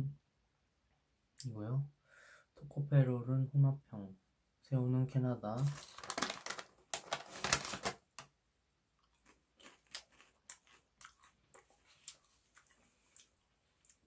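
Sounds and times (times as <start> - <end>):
foil snack bag crinkling: 5.6 - 8.0
faint crackles and clicks: 5.6 - 8.3.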